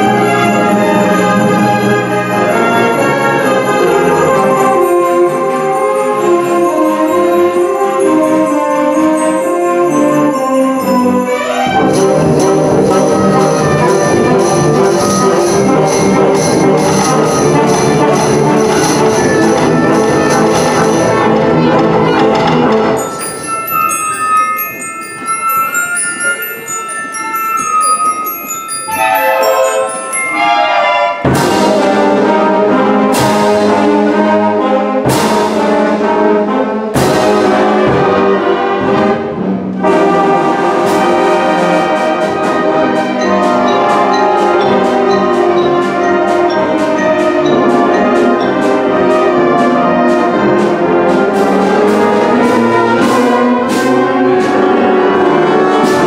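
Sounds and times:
bell-like mallet notes: 0:00.0 - 0:32.4, 0:42.5 - 0:50.6
concert band playing: 0:00.0 - 0:56.0
loud brass and drum hits: 0:31.2 - 0:43.2.

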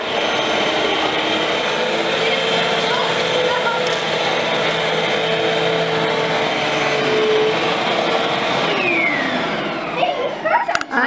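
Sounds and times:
vacuum cleaner running on carpet: 0:00.0 - 0:10.8.

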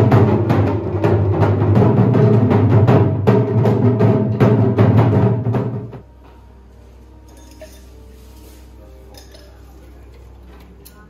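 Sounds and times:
drum-heavy music: 0:00.0 - 0:06.3.

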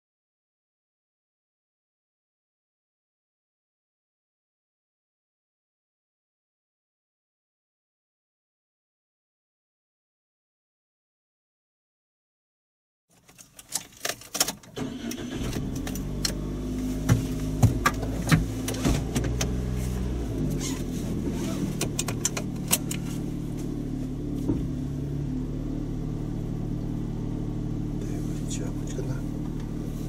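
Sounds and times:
car engine starting and idling: 0:13.2 - 0:30.0.

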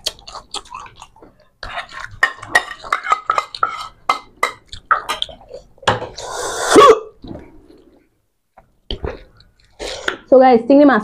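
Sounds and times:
mouth sounds of eating: 0:00.0 - 0:04.0
plates clinking: 0:01.8 - 0:06.2.

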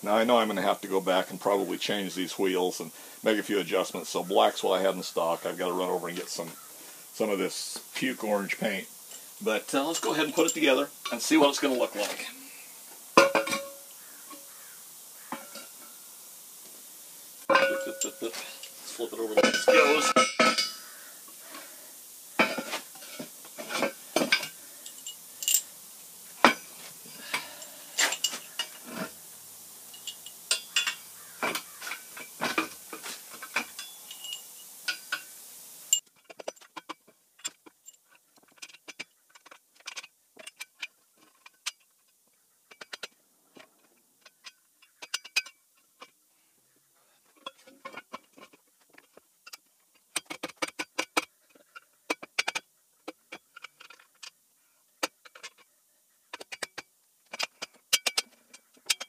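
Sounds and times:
metal parts clinking and knocking: 0:17.5 - 0:18.8, 0:23.6 - 0:25.7, 0:30.0 - 0:35.2, 0:35.9 - 0:41.9, 0:43.9 - 0:46.1, 0:47.4 - 0:54.4, 0:55.0 - 0:55.7, 0:56.3 - 0:59.0.

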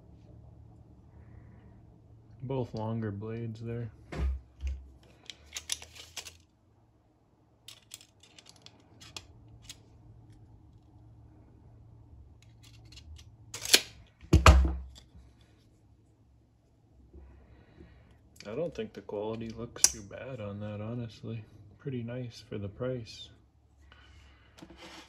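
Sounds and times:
small handling clicks: 0:05.0 - 0:06.5, 0:07.7 - 0:10.9.

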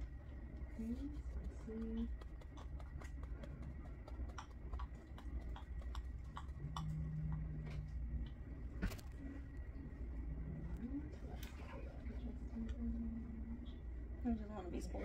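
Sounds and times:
low room hum: 0:00.0 - 0:15.0
computer keyboard typing: 0:01.4 - 0:07.0.

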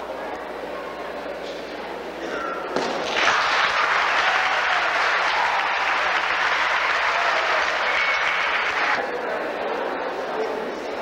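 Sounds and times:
audience applauding: 0:03.0 - 0:09.0.

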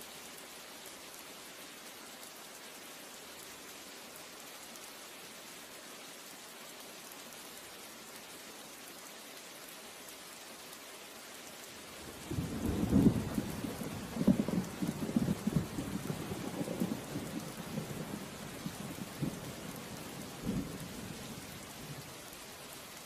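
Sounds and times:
rain hissing: 0:00.0 - 0:23.0
low rumble of thunder: 0:12.1 - 0:22.0.

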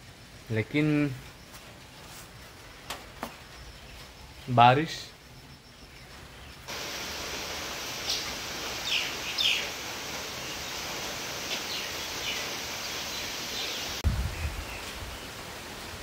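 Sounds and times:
rain falling: 0:06.0 - 0:16.0
bird chirping: 0:08.0 - 0:14.9.

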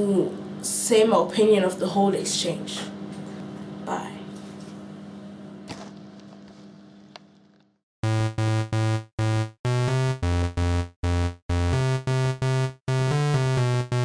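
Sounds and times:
room hum: 0:00.0 - 0:09.5.

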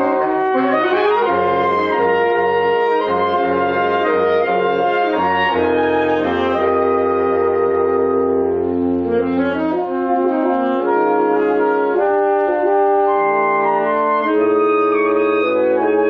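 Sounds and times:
saxophone ensemble holding chords: 0:00.0 - 0:16.0
baritone saxophone bass note: 0:00.3 - 0:12.8.

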